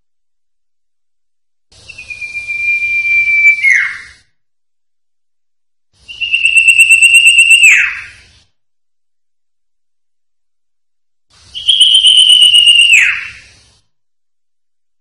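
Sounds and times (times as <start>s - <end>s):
bird whistling: 1.8s - 4.3s, 6.0s - 8.3s, 11.5s - 13.6s.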